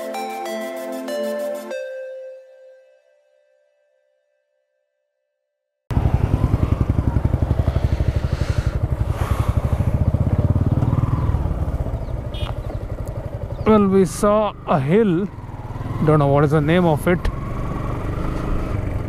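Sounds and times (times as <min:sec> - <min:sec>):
motorcycle engine running: 0:05.9 - 0:19.0.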